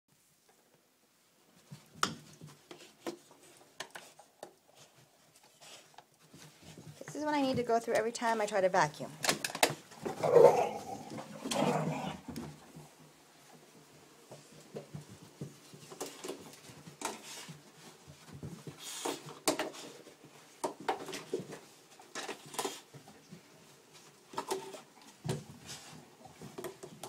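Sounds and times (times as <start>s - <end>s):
paws pattering on floor: 1.5s - 8.8s, 9.8s - 27.0s
dog growling and barking: 10.0s - 12.4s.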